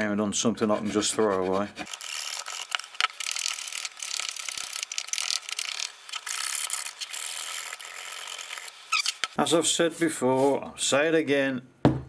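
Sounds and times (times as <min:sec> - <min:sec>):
hand file rasping: 0:00.6 - 0:02.8.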